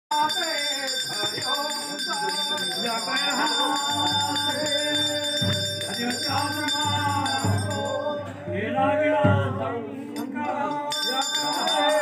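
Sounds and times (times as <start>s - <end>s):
bells ringing: 0.1s - 8.4s, 10.2s - 12.0s
group of people singing: 0.1s - 12.0s
low regular beat: 3.9s - 10.4s.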